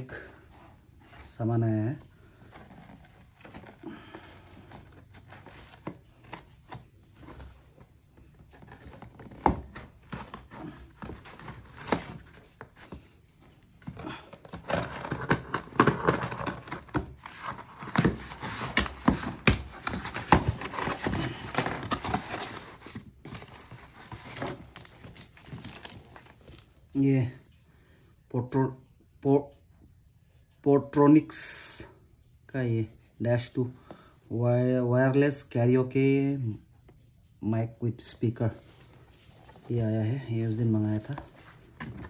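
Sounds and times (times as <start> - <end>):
tape and cardboard tearing: 8.5 - 13.0, 13.8 - 26.2.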